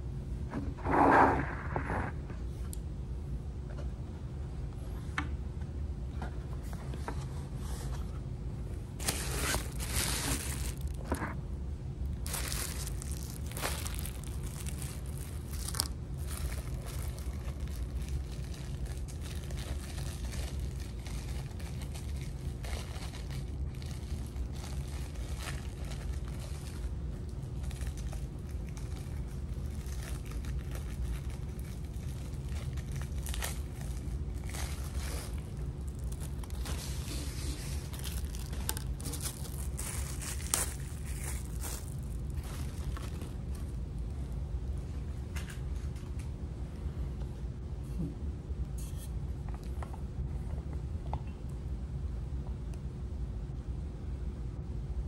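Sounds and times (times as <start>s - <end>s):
low hum: 0.0s - 55.0s
paper packaging rustling: 9.0s - 11.4s, 12.1s - 43.8s.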